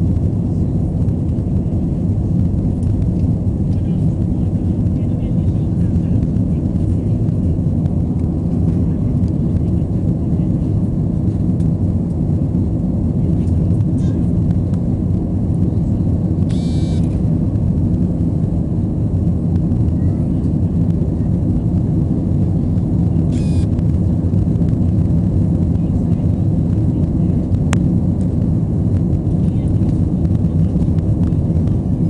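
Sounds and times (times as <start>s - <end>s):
airliner cabin engine drone: 0.0s - 32.0s.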